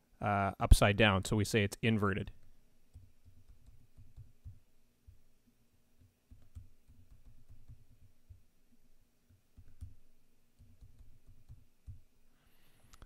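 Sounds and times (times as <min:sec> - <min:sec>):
keyboard typing: 0:02.4 - 0:05.2, 0:06.0 - 0:08.4, 0:09.3 - 0:12.0.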